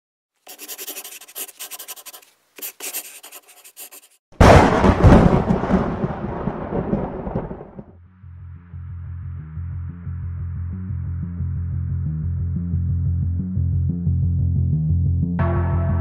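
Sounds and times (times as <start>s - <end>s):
scratchy scribbling strokes: 0.4s - 4.2s
deep boom: 4.4s - 7.9s.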